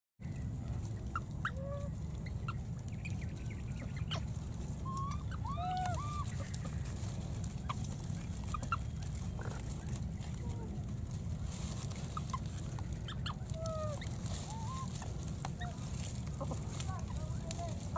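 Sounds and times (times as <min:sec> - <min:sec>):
steady low rumble: 0:00.2 - 0:17.9
high animal calls: 0:03.8 - 0:07.0, 0:12.0 - 0:17.3.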